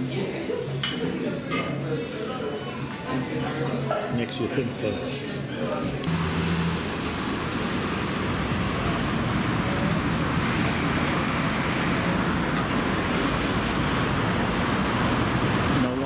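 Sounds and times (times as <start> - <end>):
cars driving past: 6.1 - 16.0.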